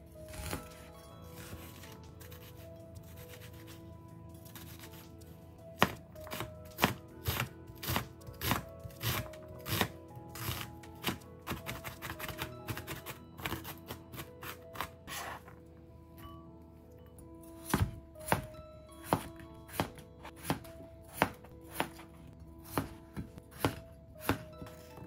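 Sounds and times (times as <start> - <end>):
knife chopping on plastic board: 5.8 - 15.3, 17.6 - 24.9.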